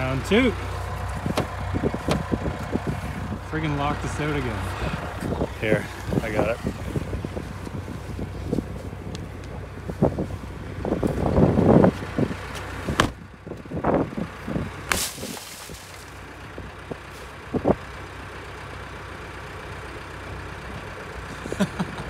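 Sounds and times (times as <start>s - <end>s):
shovel striking car window: 1.3s - 2.2s, 13.0s - 13.2s, 14.9s - 15.5s
glass breaking: 14.9s - 16.0s.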